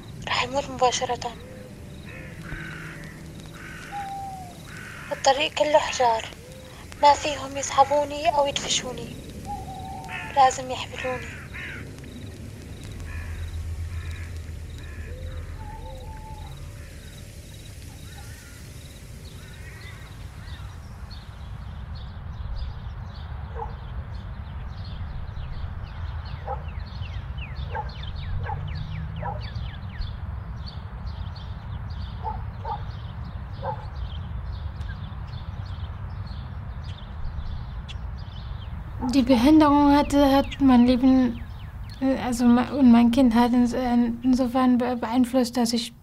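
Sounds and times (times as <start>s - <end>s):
low rumble: 0.0s - 31.9s
birds chirping and twittering: 0.0s - 46.0s
wind-like rustle: 0.0s - 46.0s
distant dog barks: 23.5s - 23.9s, 26.4s - 26.8s, 27.6s - 29.6s, 32.2s - 33.0s, 33.6s - 34.0s.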